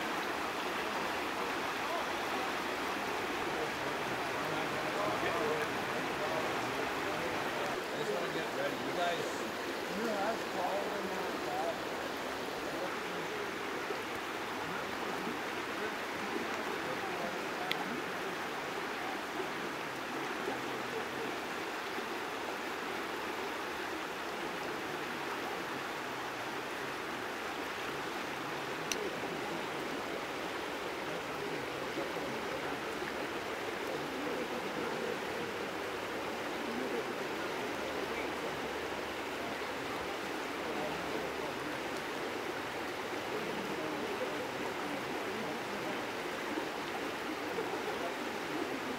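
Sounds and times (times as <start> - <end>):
river water rushing: 0.0 - 48.9
faint ticks: 17.6 - 17.9, 28.8 - 29.1.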